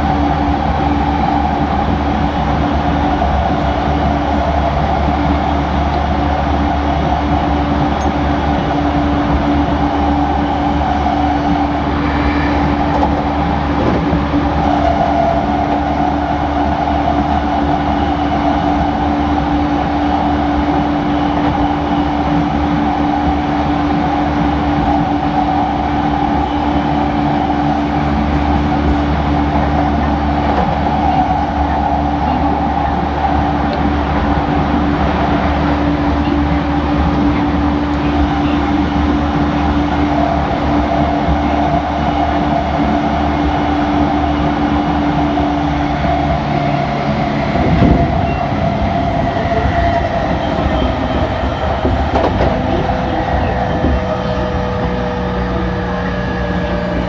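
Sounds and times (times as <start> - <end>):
electric train humming: 0.0 - 57.0.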